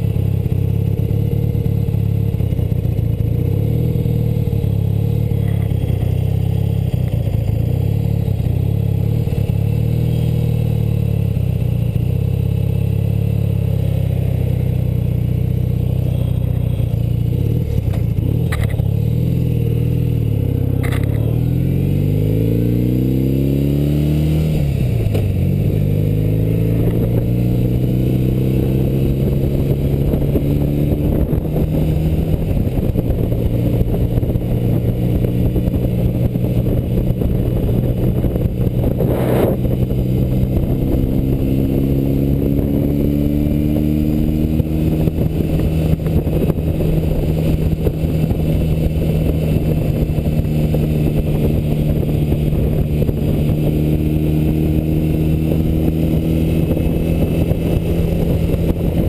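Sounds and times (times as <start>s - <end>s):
motorcycle engine running: 0.0s - 59.0s
wind noise on microphone: 24.2s - 59.0s.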